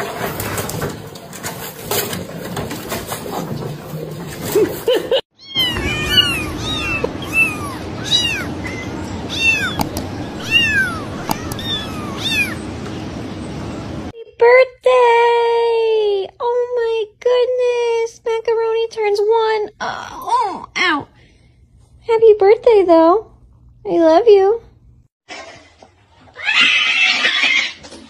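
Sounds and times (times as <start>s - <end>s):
kittens mewing: 5.4s - 12.7s.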